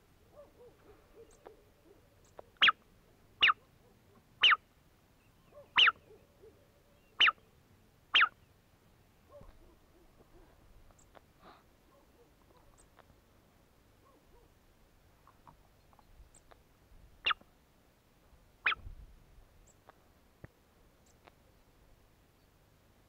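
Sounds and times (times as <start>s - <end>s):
sharp whistled calls: 5.6s - 6.2s, 8.2s - 8.4s.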